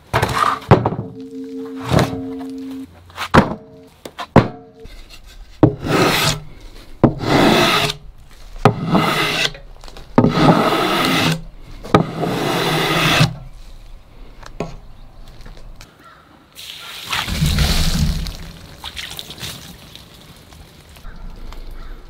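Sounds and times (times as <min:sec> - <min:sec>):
wooden slat scraping log: 0:04.2 - 0:13.6.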